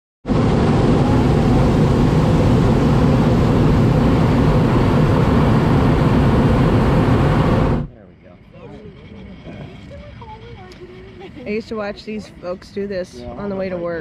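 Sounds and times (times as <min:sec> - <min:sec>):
propane burner blast: 0:00.3 - 0:07.9.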